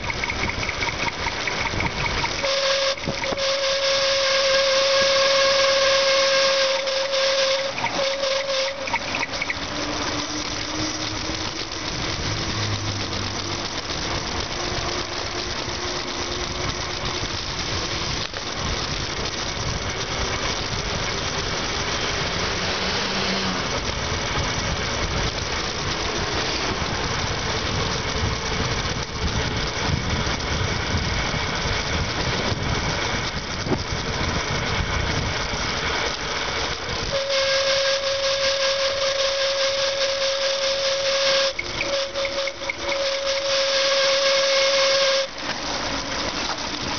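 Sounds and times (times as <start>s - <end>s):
wind on microphone: 0.0s - 3.6s, 23.8s - 36.1s
high whistling squeal: 0.0s - 11.6s, 37.1s - 45.4s
tyre and road noise: 0.0s - 46.9s
car engines passing: 7.1s - 37.0s.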